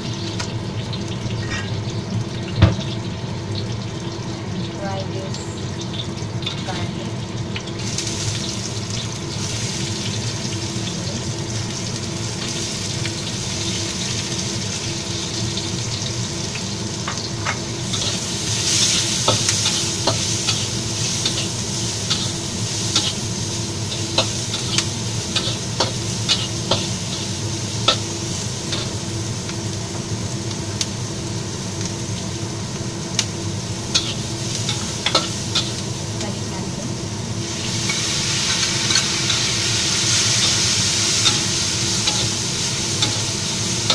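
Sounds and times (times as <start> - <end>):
onions sizzling in a wok: 0.0 - 43.9
spatula scraping a wok: 17.9 - 29.0, 33.9 - 35.8, 37.7 - 43.9.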